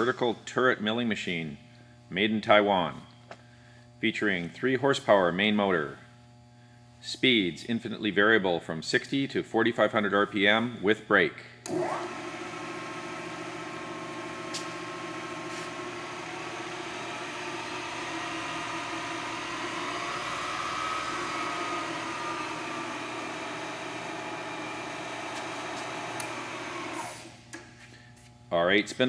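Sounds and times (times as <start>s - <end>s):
milling machine whirring: 11.7s - 27.6s.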